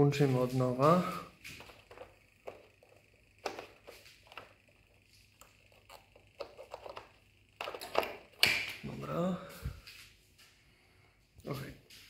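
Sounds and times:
plug scraping and fumbling: 0:01.5 - 0:04.8, 0:05.4 - 0:08.7.

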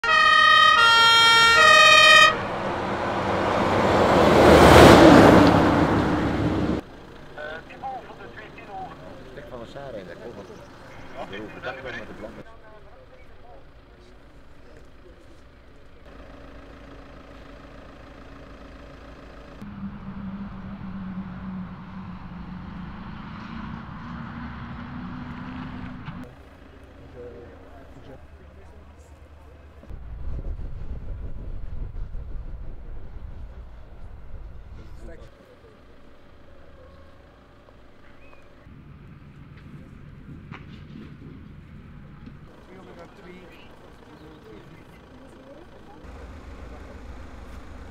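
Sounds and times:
fire engine two-tone siren: 0:00.0 - 0:03.9, 0:19.6 - 0:23.1
truck engine and tyre noise: 0:00.0 - 0:47.9.

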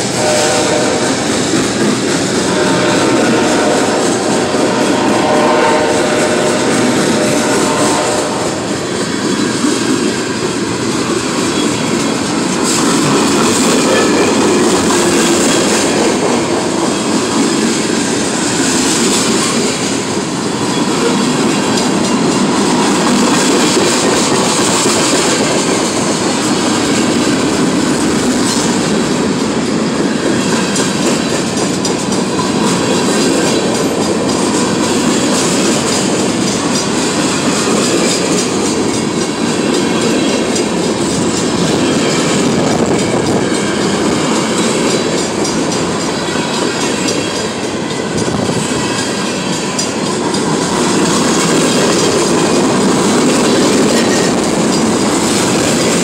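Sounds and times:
freight train wheels on rails: 0:00.0 - 0:56.0.

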